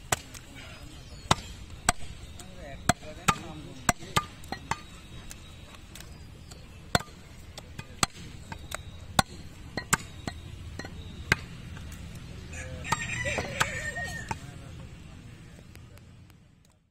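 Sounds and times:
cleaver chopping on wooden block: 0:06.5 - 0:11.5.

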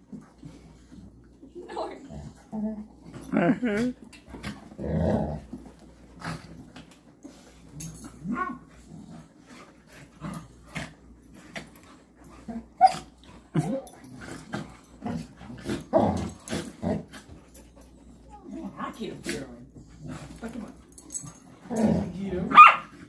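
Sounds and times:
dogs yipping and whimpering: 0:12.5 - 0:13.2.

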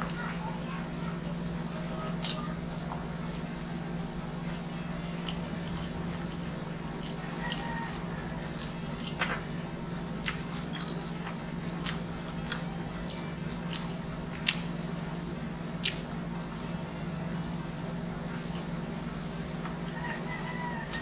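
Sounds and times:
chewing pizza with mouth smacks: 0:05.2 - 0:09.2, 0:10.1 - 0:14.9, 0:15.8 - 0:16.3.

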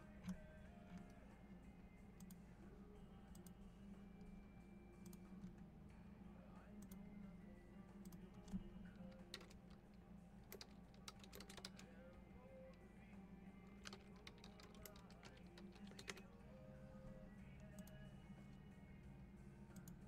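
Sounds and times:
faint keyboard typing: 0:02.1 - 0:02.5, 0:03.2 - 0:05.7, 0:08.0 - 0:18.7, 0:19.7 - 0:20.0.

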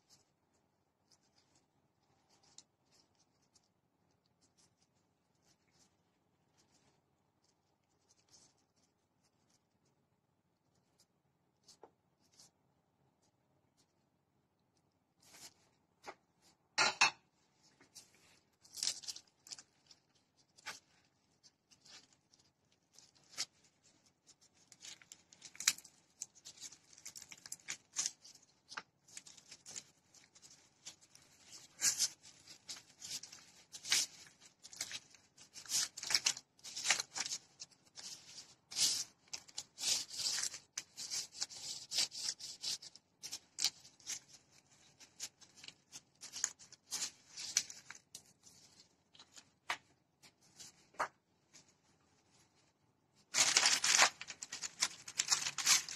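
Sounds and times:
bamboo mat rustling and crinkling: 0:17.4 - 0:55.9.

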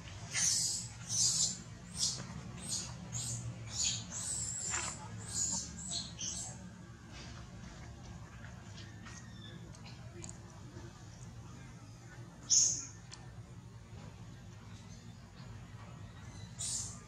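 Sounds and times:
baby monkey squeaking: 0:00.3 - 0:06.5.

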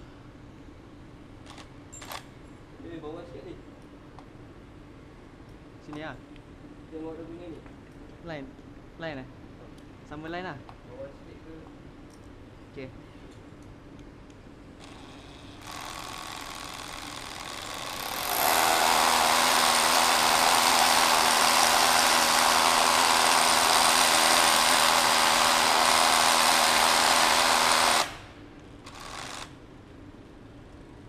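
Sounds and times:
rotary hammer drilling into wall: 0:14.8 - 0:28.3, 0:28.9 - 0:29.5.

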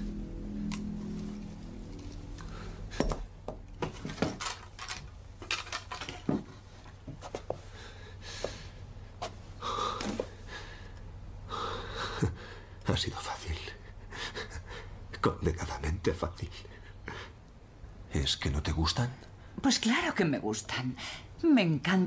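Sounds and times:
objects clicking and knocking: 0:03.0 - 0:06.5.

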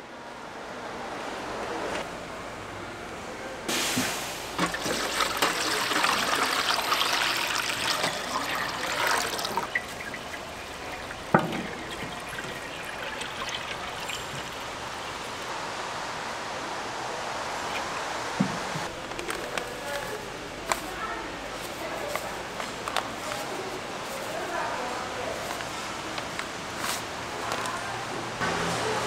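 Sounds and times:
food deep-frying in oil: 0:04.6 - 0:15.5.

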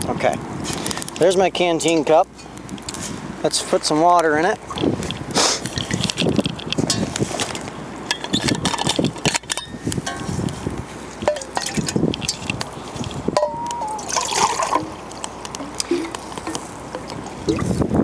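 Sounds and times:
water pouring into metal cup: 0:11.3 - 0:15.0.

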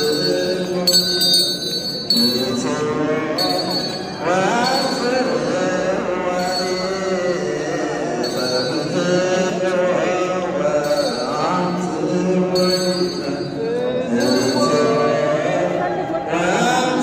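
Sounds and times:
metallic jingling of sistrums: 0:00.0 - 0:09.6, 0:10.8 - 0:15.5
voices chanting in unison: 0:02.2 - 0:17.0.

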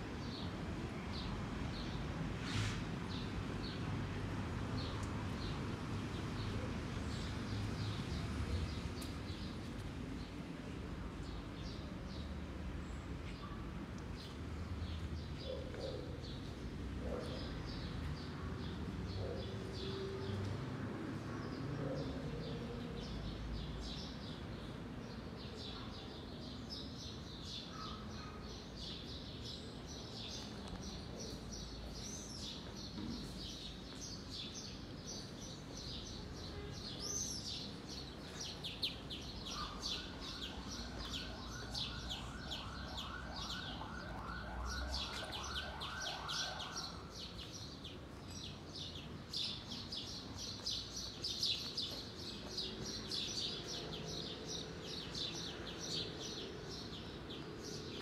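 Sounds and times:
small birds chirping: 0:26.8 - 0:58.0.

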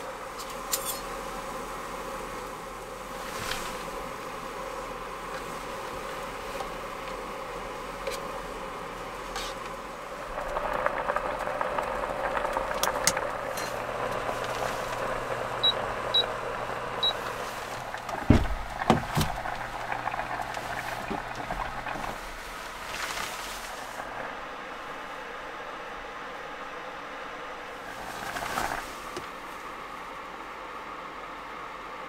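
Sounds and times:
water boiling in a pot: 0:00.0 - 0:32.0
loud knocks: 0:18.2 - 0:19.4.

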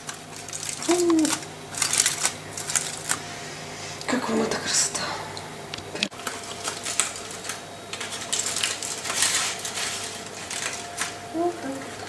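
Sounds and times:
foil crinkling and rustling: 0:00.0 - 0:03.3, 0:06.1 - 0:12.0.

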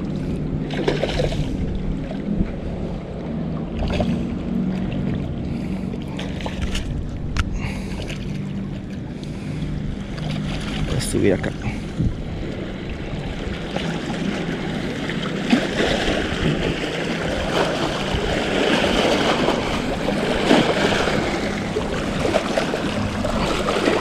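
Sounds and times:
waves splashing against rocks: 0:13.4 - 0:24.0.

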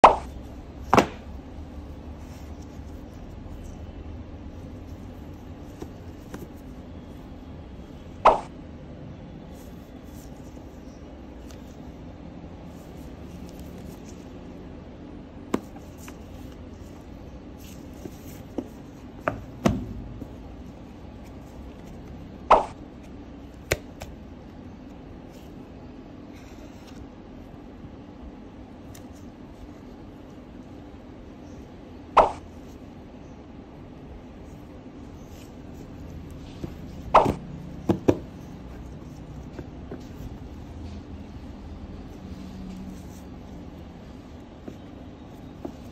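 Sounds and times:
steady low hum: 0:00.0 - 0:45.9
sharp knocks on cardboard: 0:00.9 - 0:01.2, 0:18.5 - 0:20.3, 0:36.6 - 0:38.4
cardboard box knocking on desk: 0:37.2 - 0:38.4.

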